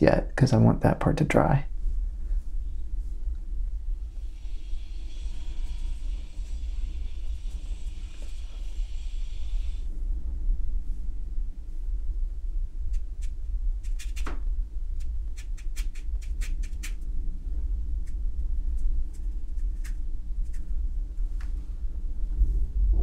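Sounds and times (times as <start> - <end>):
low rumble: 1.3 - 13.8, 14.4 - 15.4, 17.0 - 23.0
paintbrush ticking on paper: 15.0 - 17.0.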